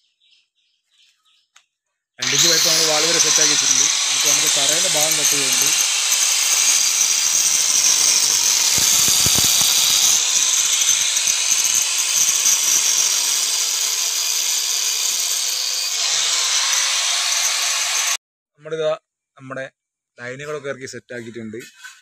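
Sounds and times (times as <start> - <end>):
angle grinder cutting masonry: 2.2 - 18.2.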